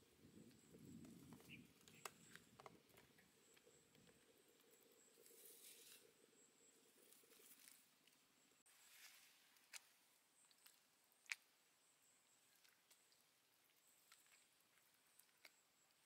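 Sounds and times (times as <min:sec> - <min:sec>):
leaves rustling: 0:05.1 - 0:06.2, 0:06.8 - 0:10.8.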